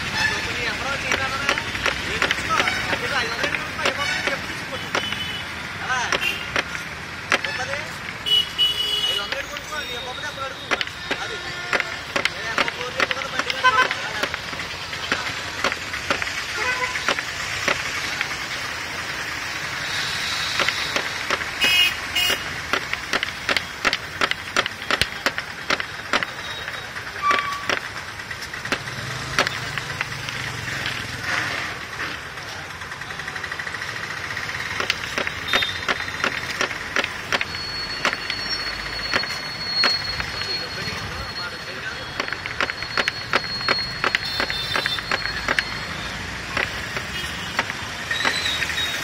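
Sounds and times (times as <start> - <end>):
cleaver chopping on wooden table: 20.6 - 26.3, 28.7 - 30.2.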